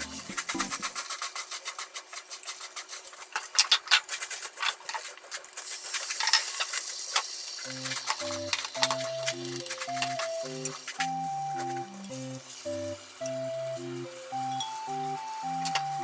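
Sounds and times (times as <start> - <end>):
background music: 0.0 - 0.7, 7.7 - 16.0
light sizzle from pan: 0.0 - 16.0.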